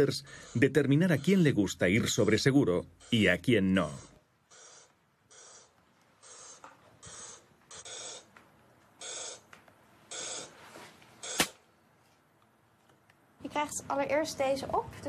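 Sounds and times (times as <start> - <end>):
balloon popping: 11.2 - 11.7.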